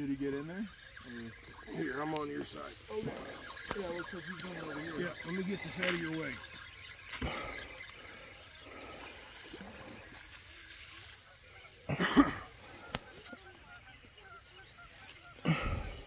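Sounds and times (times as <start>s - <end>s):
birds calling: 0.0s - 16.0s.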